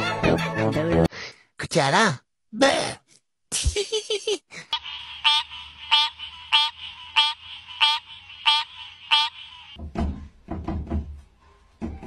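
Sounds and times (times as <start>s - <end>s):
frog croaking: 5.2s - 9.8s.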